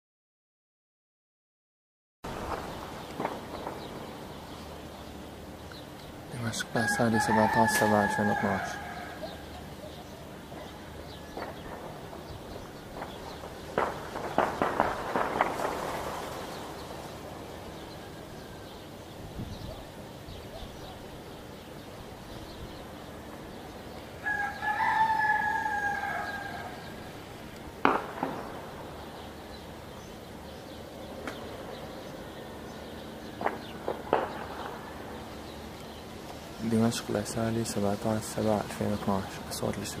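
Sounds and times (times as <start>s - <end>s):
rooster crowing: 6.7s - 9.6s, 24.2s - 27.3s
gunshots: 13.0s - 16.8s, 27.8s - 28.8s.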